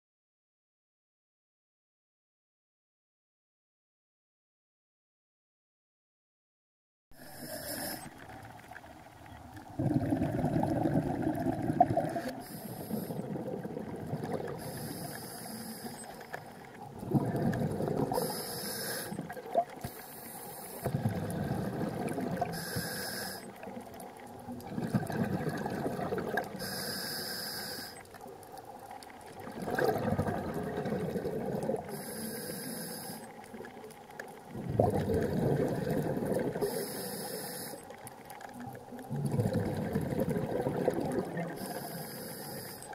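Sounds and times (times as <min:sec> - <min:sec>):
regulator inhale hiss: 0:07.2 - 0:08.3, 0:12.1 - 0:13.4, 0:14.5 - 0:16.6, 0:18.1 - 0:21.0, 0:22.4 - 0:23.6, 0:26.5 - 0:28.1, 0:31.8 - 0:33.4, 0:36.6 - 0:38.0, 0:41.6 - 0:42.9
exhaled bubbles rushing: 0:07.2 - 0:15.0, 0:16.5 - 0:18.4, 0:20.8 - 0:22.6, 0:23.4 - 0:26.6, 0:28.2 - 0:32.0, 0:33.4 - 0:36.8, 0:38.2 - 0:41.8.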